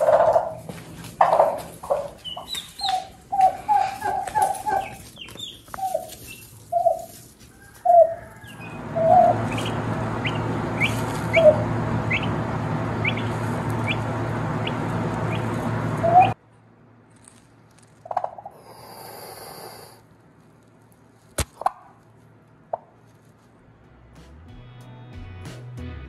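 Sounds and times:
chicks peeping: 0.0 - 16.4
turkey hen clucking: 0.0 - 16.4
steady low hum: 0.0 - 24.1.

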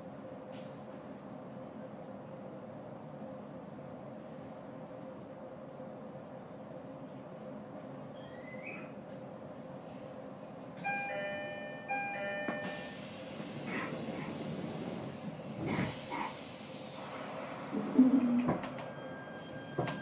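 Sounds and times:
electric train humming: 10.4 - 20.0.

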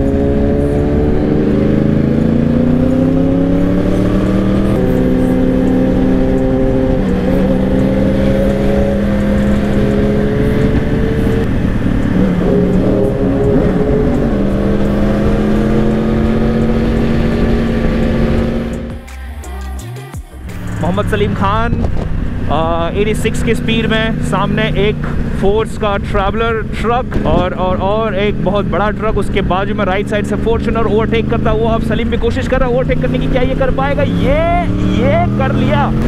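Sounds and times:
motorcycle engine at speed: 0.0 - 19.0, 20.6 - 36.0
wind noise: 21.2 - 22.9.

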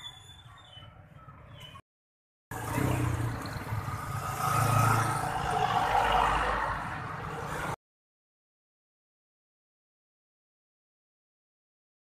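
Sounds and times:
scooters and motorcycles passing: 2.5 - 7.8.

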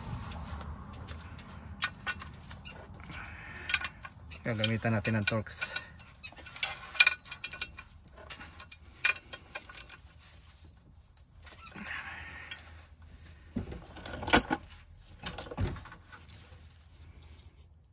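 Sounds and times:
metal tools clinking: 0.9 - 10.7
hand ratchet clicking: 1.4 - 7.9.

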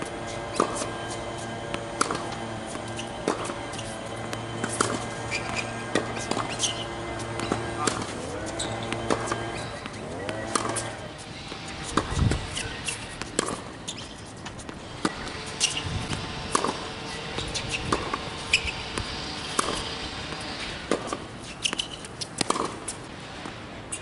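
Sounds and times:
racquets hitting tennis ball: 0.0 - 24.0
shoes squeaking on court: 0.0 - 24.0
ball bouncing on hard court: 0.1 - 22.8.

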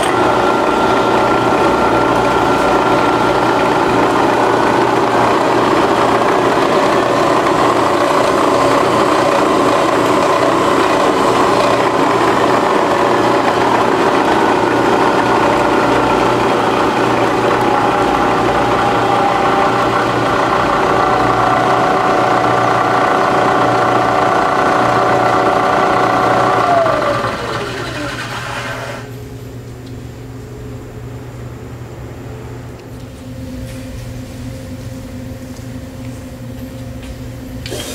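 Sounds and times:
milling machine hum with high whine: 0.0 - 37.9.

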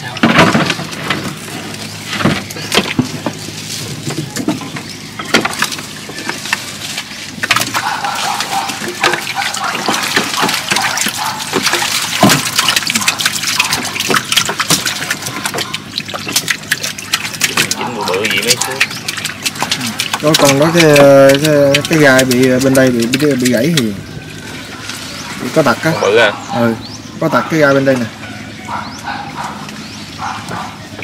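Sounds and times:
fish knocking and slapping: 0.0 - 25.6
water splashing and dripping: 4.6 - 25.8.

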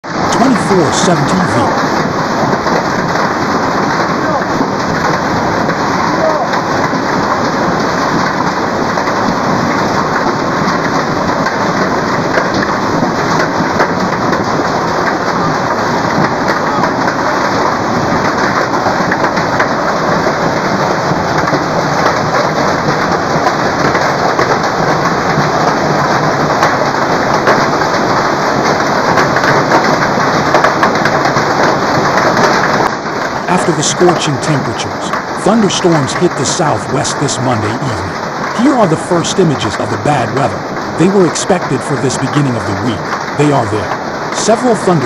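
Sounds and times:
hail and heavy rain pelting: 0.1 - 45.0
hailstones ticking: 0.1 - 45.0.

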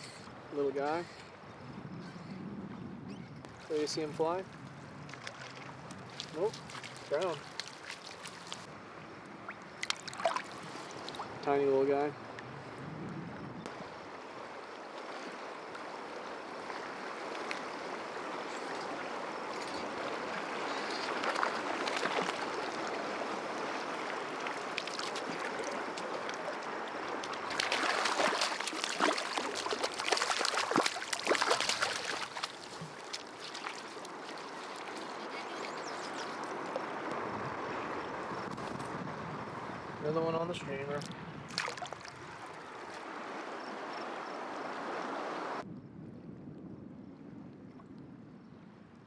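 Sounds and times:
river current flowing: 0.0 - 1.4, 3.5 - 12.8, 13.7 - 38.5, 40.7 - 45.6
fish splashing at surface: 9.8 - 11.3, 27.5 - 34.9, 41.5 - 42.2.

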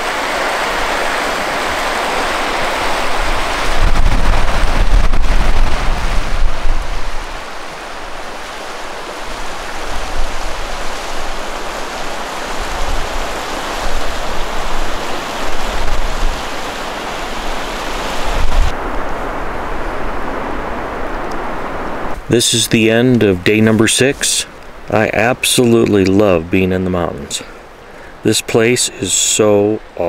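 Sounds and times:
wind buffeting microphone: 0.0 - 22.4
river water rushing over rocks: 0.0 - 26.5.

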